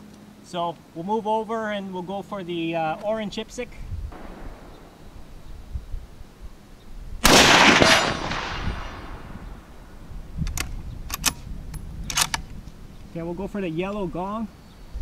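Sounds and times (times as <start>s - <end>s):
rifle shot with echo: 4.1s - 6.2s, 7.2s - 9.8s
quiet sharp clicks: 10.4s - 13.1s.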